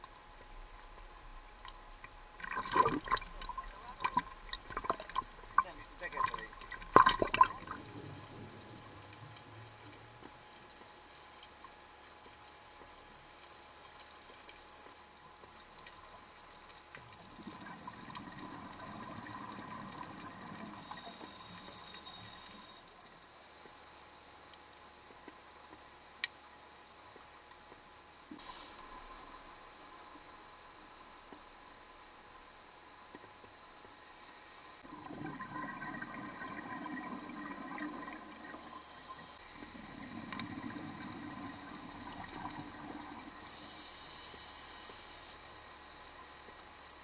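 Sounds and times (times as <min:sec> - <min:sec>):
scuba exhalation bubbles: 0:02.4 - 0:08.8, 0:34.9 - 0:39.0
underwater water hiss: 0:18.3 - 0:22.9, 0:28.3 - 0:29.6, 0:36.5 - 0:45.6.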